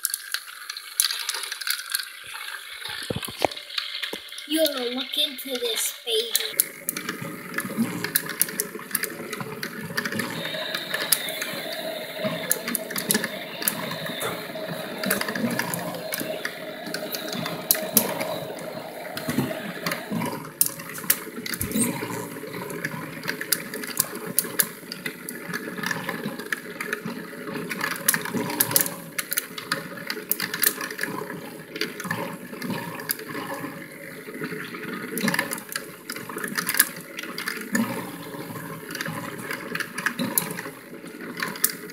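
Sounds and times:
sharp clicks and rattles: 0:00.0 - 0:27.1
faint steady hum: 0:10.0 - 0:20.6.

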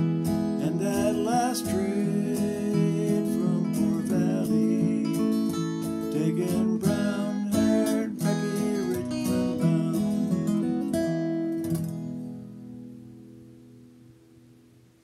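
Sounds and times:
acoustic guitar flatpicking: 0:00.0 - 0:14.9.

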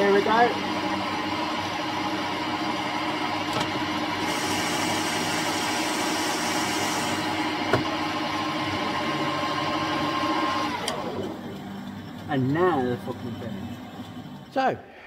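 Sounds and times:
metal lathe humming: 0:00.0 - 0:14.6
cutting tool hiss: 0:04.2 - 0:07.3.

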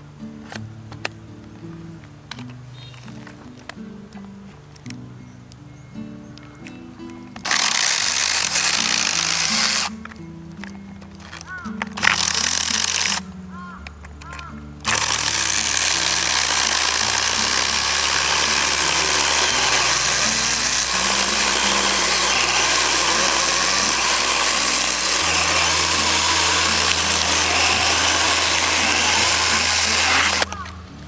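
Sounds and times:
mini chainsaw cutting log: 0:07.4 - 0:10.0, 0:12.0 - 0:13.2, 0:14.8 - 0:30.8.

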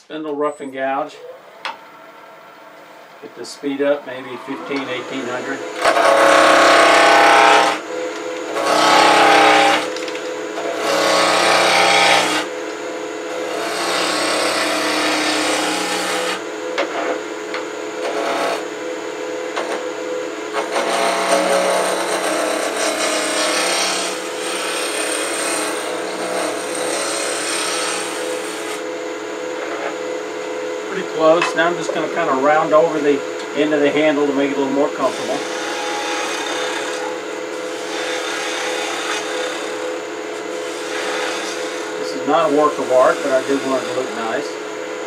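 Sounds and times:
wood lathe humming: 0:01.4 - 0:45.0
gouge cutting wood shavings: 0:13.7 - 0:16.3, 0:20.6 - 0:28.8, 0:40.7 - 0:44.4.

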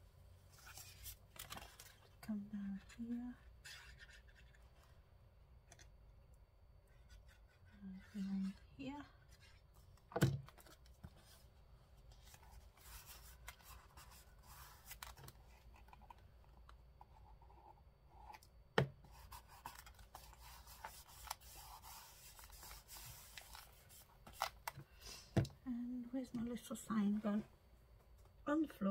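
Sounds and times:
paper rustling and scraping: 0:00.5 - 0:02.1, 0:19.1 - 0:24.7.

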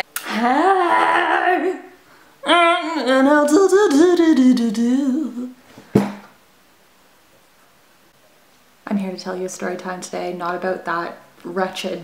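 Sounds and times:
woman humming: 0:00.0 - 0:06.2.

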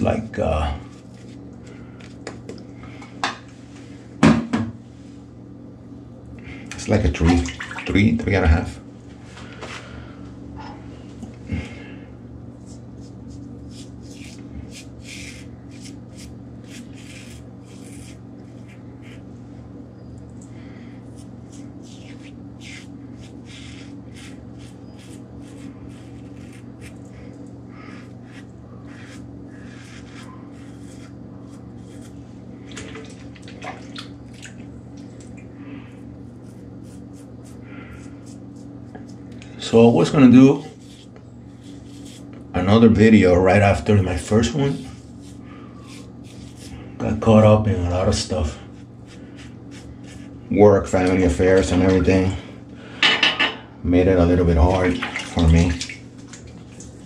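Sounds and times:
steady low hum: 0:00.0 - 0:57.0
razor scraping stubble: 0:12.6 - 0:19.3, 0:21.0 - 0:32.3, 0:35.9 - 0:42.4, 0:44.2 - 0:51.8.

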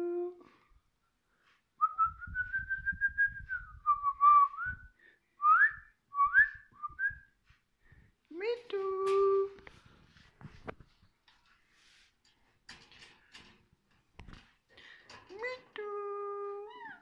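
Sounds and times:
person whistling: 0:01.8 - 0:07.3.

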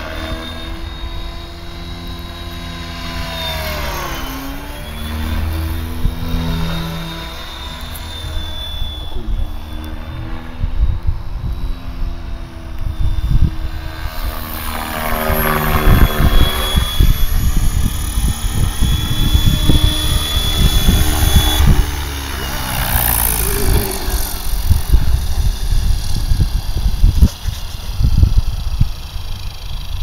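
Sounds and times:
helicopter rotor blades swishing: 0:00.0 - 0:30.0
motor and gear whine: 0:00.0 - 0:30.0.

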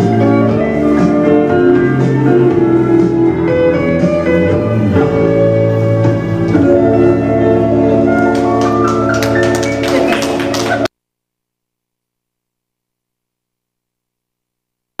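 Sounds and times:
dance music: 0:00.0 - 0:10.9.

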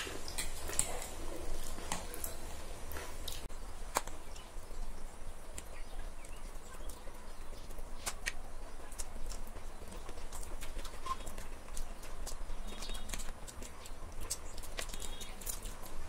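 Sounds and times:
chewing and mouth smacks: 0:00.0 - 0:04.2, 0:05.5 - 0:16.0.

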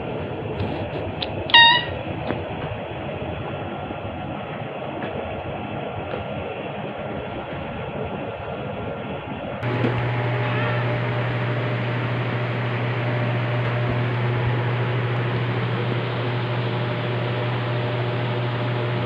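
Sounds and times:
electric appliance humming: 0:01.2 - 0:02.3, 0:09.6 - 0:19.0.

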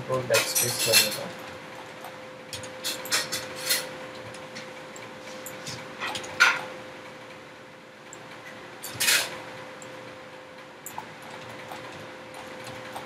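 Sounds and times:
faint electrical hum: 0:00.0 - 0:13.0.

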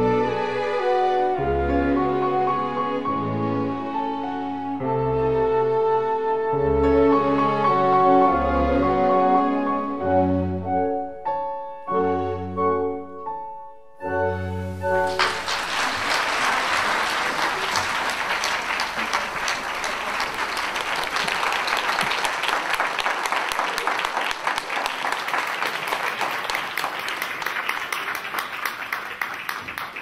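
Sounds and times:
audience applauding: 0:14.9 - 0:30.0.

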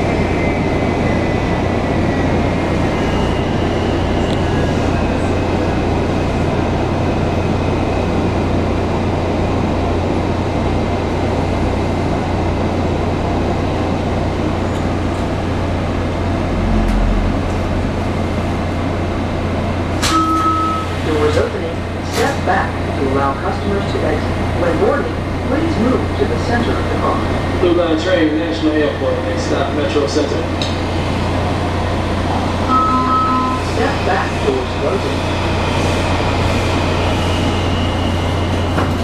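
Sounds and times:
subway train wheels rumbling: 0:00.0 - 0:39.0
faint tone sliding down: 0:16.0 - 0:19.2
short steady tone: 0:16.2 - 0:19.0.

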